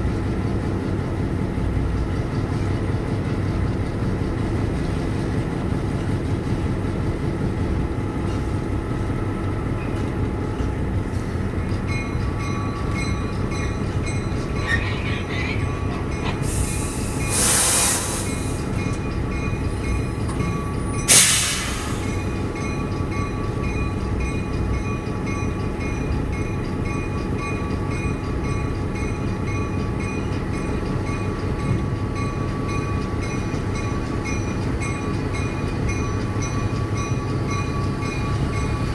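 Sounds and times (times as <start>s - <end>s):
diesel locomotive running: 0.0s - 38.9s
air hiss bursts: 16.4s - 18.6s, 21.1s - 22.2s.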